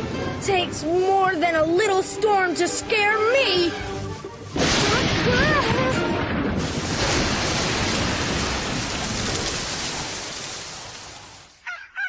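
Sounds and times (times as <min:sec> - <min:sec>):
heavy rain: 0:04.4 - 0:11.6.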